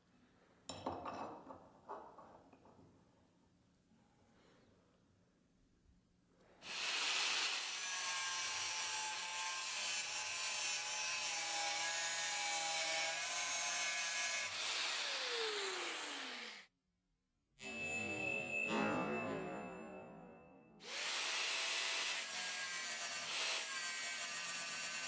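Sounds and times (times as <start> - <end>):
angle grinder cutting steel: 6.6 - 16.7, 20.8 - 25.0.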